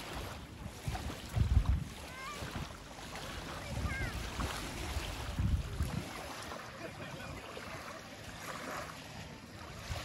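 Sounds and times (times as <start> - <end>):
wind buffeting microphone: 0.0 - 6.5
small waves lapping: 0.0 - 10.0.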